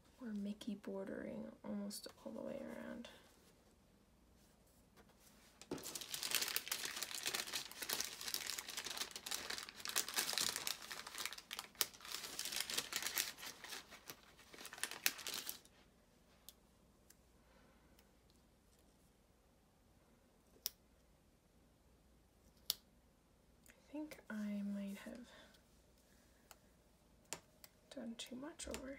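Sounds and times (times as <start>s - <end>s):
paper crinkling and rustling: 5.0s - 15.7s.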